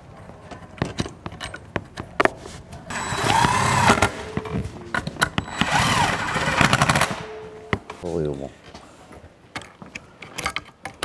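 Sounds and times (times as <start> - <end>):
hissing whir: 2.9 - 4.3, 5.4 - 7.4.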